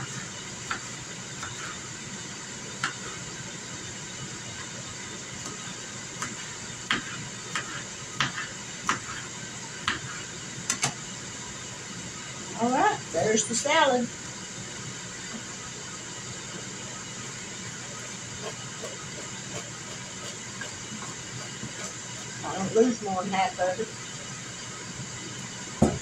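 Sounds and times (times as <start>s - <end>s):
grill fan hissing: 0.0s - 26.0s
knife chopping on plastic board: 2.8s - 3.1s, 6.2s - 9.2s, 9.8s - 10.9s.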